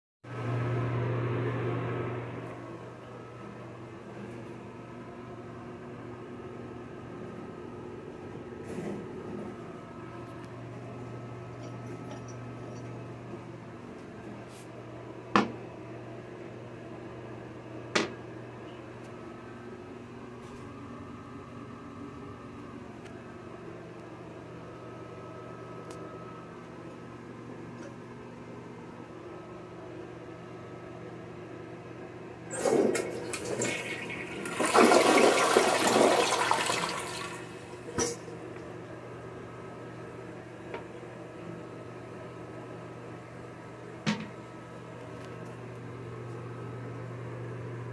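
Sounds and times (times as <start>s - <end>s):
toilet flushing: 32.5s - 38.2s.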